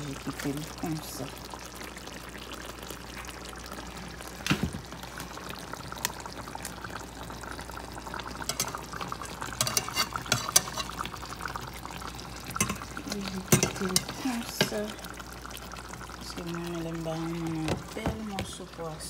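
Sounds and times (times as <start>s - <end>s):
sauce bubbling in a pan: 0.0s - 19.0s
metal spatula scraping a pan: 9.6s - 11.1s.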